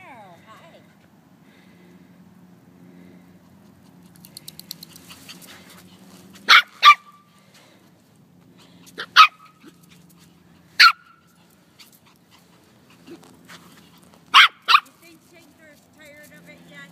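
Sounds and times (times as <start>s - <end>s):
puppy barking: 6.5s - 7.2s, 9.0s - 9.8s, 10.8s - 11.2s, 14.3s - 15.0s.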